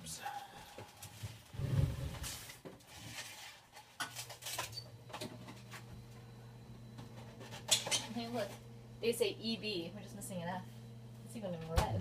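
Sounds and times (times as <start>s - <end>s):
low steady hum: 4.5s - 12.0s.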